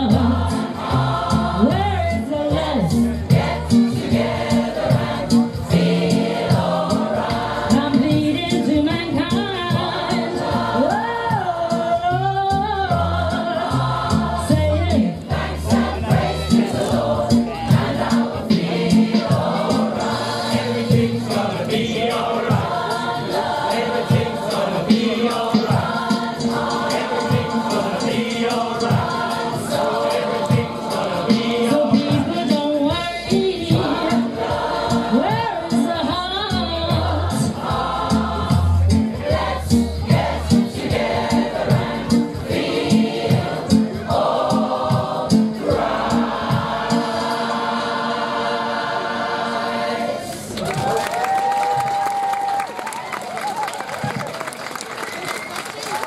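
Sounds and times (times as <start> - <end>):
choir singing in harmony: 0.0 - 8.9, 9.5 - 12.2, 12.8 - 50.6
steady beat: 14.5 - 32.9.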